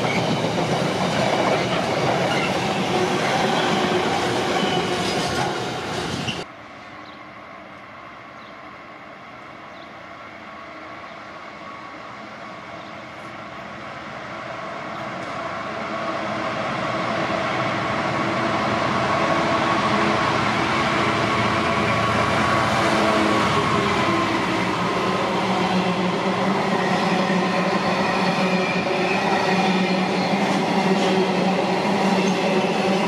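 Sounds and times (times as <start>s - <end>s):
steady train tones: 0.0s - 33.0s
train rumbling past: 0.0s - 33.0s.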